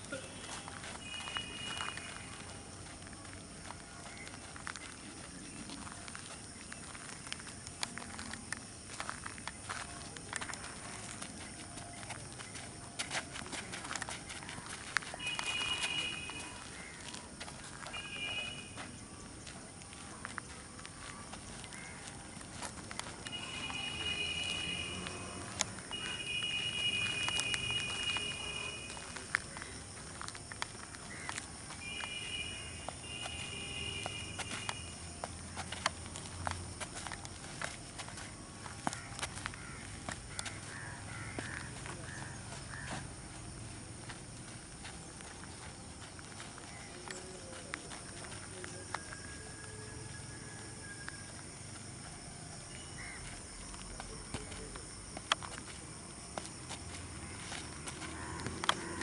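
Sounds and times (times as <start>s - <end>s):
footfalls on dirt ground: 0.0s - 59.0s
insects chirping: 0.0s - 59.0s
high steady tone: 0.1s - 2.7s, 15.0s - 16.8s, 17.8s - 19.2s, 23.0s - 29.4s, 31.8s - 35.4s.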